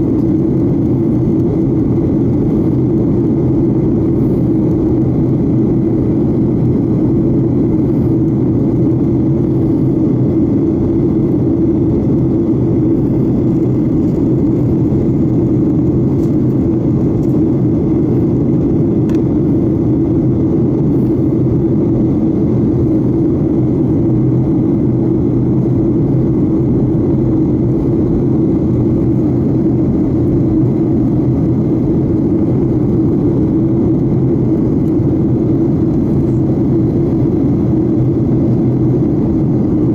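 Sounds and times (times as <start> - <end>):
jet airliner cabin drone: 0.0 - 39.9.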